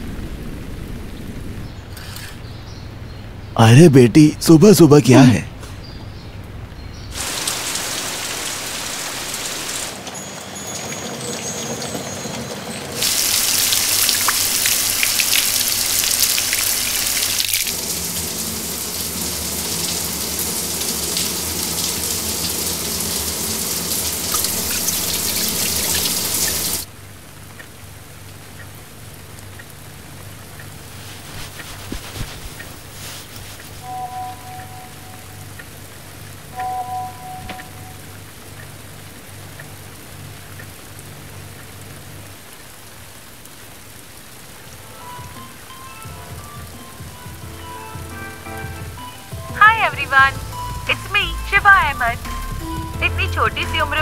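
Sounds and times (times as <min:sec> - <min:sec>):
shower spray splashing: 0:07.1 - 0:10.1, 0:13.0 - 0:26.9.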